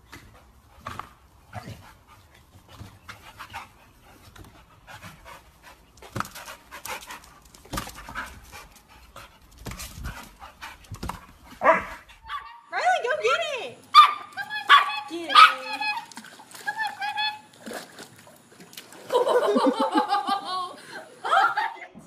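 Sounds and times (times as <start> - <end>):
dog panting: 0.1 - 12.3.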